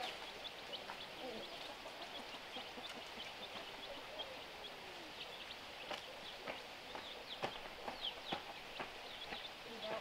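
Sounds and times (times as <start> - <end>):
chicks peeping: 0.0 - 10.0.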